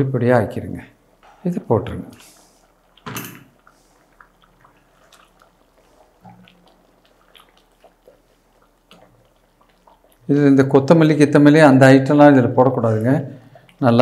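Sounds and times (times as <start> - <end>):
spatula stirring thick gravy: 1.1 - 12.1.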